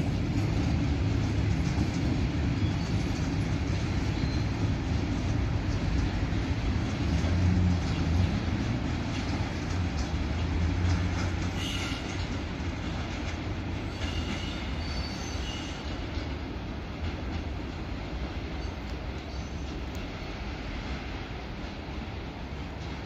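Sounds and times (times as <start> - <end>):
freight train rumble: 0.0 - 23.0
high wheel squeals: 13.9 - 15.9.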